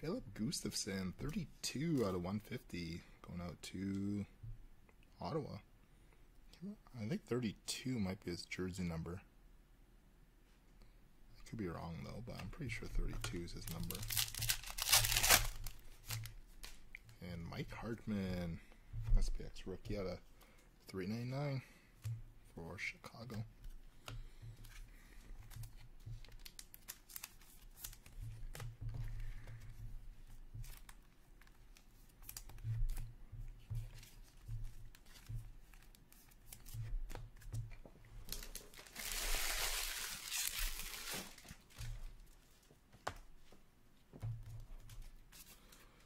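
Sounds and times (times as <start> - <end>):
card stock clicking and rustling: 13.0 - 16.8
wrapper tearing: 13.6 - 16.8, 38.3 - 41.8.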